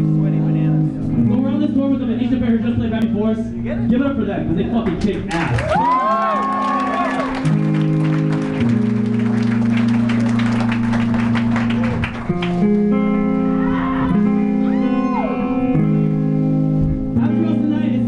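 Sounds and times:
electric guitar chords: 0.0s - 4.7s, 5.8s - 18.0s
live rock band playing: 7.2s - 17.3s.

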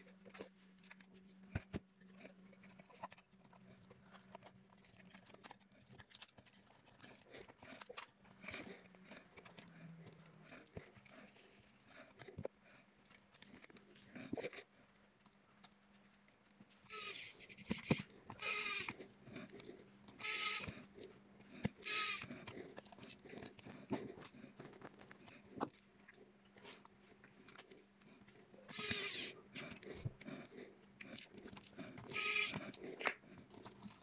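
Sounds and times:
electric screwdriver whirring: 16.9s - 19.0s, 20.2s - 20.7s, 21.8s - 22.3s, 28.7s - 29.3s, 32.1s - 32.6s
small parts clicking: 28.2s - 29.8s.

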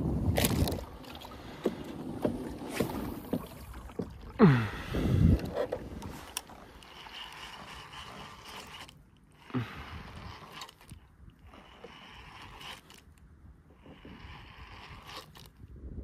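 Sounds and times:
water sounds: 0.0s - 15.7s
mechanical clicks and scrapes: 5.4s - 13.2s, 13.8s - 15.6s.

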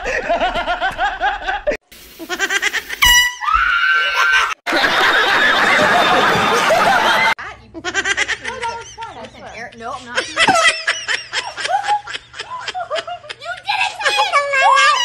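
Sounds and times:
air horn blast: 3.0s - 3.6s.

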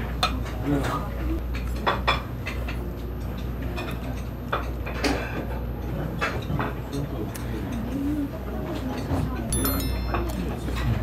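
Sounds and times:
chopsticks clinking on ceramic plates: 9.5s - 11.0s.

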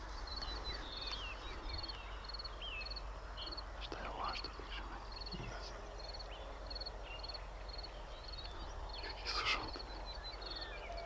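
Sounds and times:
bird chirps: 0.1s - 11.0s
insect chirping in pulsed bursts: 1.8s - 3.7s, 6.0s - 11.0s.

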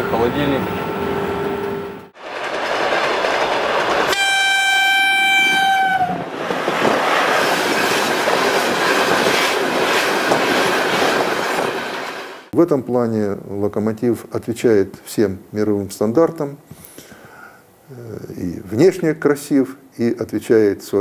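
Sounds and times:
steady hum inside locomotive cab: 0.0s - 2.1s
train wheels clattering on rails: 2.2s - 12.4s
locomotive horn blast: 4.1s - 6.2s.

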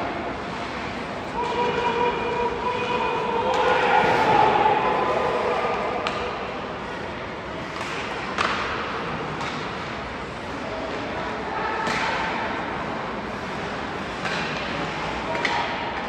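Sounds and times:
arena crowd hubbub: 0.0s - 16.0s
hockey sticks clacking on puck: 5.1s - 6.4s, 7.6s - 16.0s.

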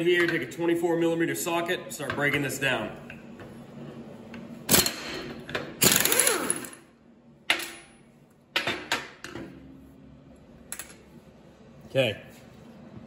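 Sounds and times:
air impact wrench hammering: 4.7s - 6.8s.

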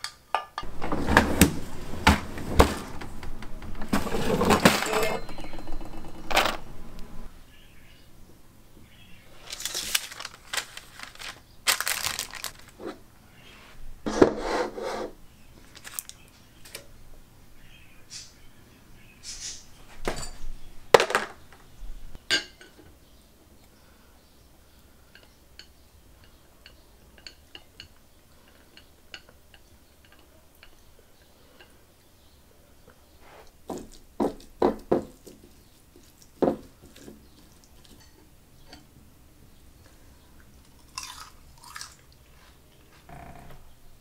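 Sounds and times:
utensils clinking against bowl: 3.9s - 6.3s, 22.3s - 22.9s, 25.1s - 31.7s, 37.8s - 38.9s.

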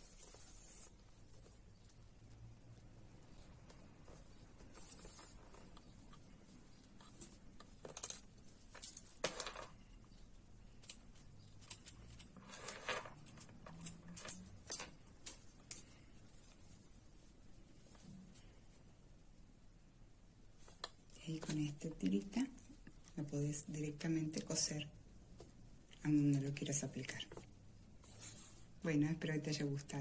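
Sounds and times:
fabric rustling and scratching: 0.0s - 9.8s, 12.0s - 18.9s.

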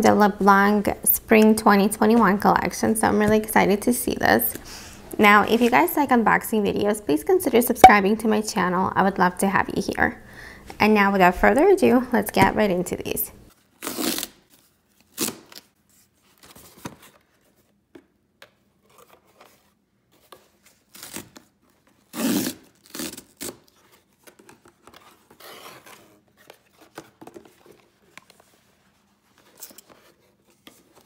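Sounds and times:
packing tape peeling off cardboard: 13.6s - 17.0s, 20.3s - 28.4s
tearing: 13.7s - 15.7s, 20.8s - 27.2s
paper and boxes crinkling: 14.4s - 17.8s, 18.8s - 22.1s, 22.7s - 31.0s.

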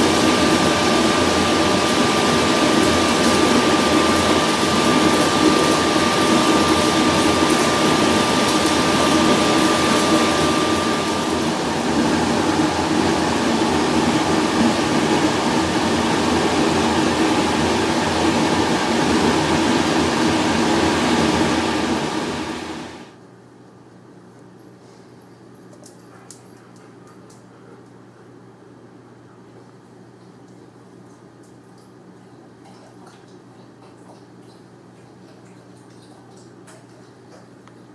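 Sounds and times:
machinery drone: 0.0s - 23.1s.

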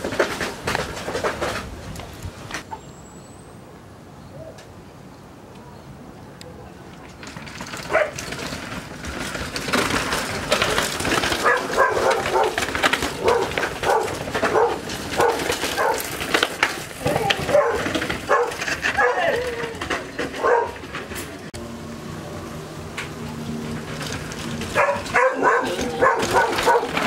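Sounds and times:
mountain bike clattering down stairs: 0.0s - 2.8s, 6.9s - 21.6s, 22.7s - 27.0s
dog barking: 7.9s - 8.2s, 11.4s - 12.6s, 13.2s - 16.1s, 17.4s - 19.3s, 20.4s - 20.8s, 24.8s - 27.0s.

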